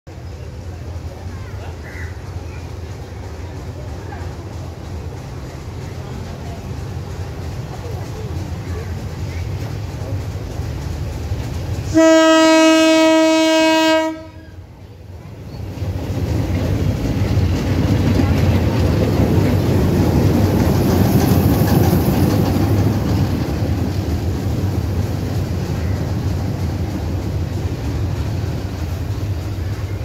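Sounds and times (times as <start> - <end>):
locomotive engine rumble: 0.1 - 30.0
train wheels on rails: 0.1 - 30.0
locomotive horn: 11.9 - 14.6.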